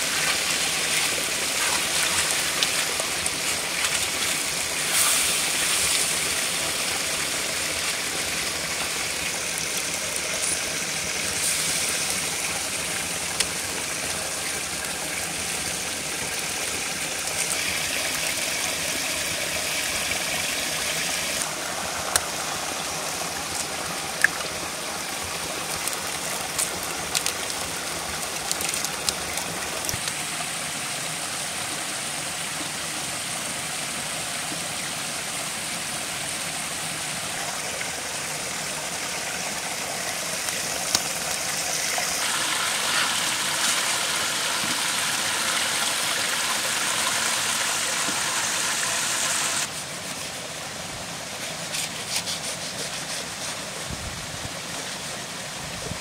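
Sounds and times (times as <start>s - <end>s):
stew sizzling in a pot: 1.5s - 8.9s.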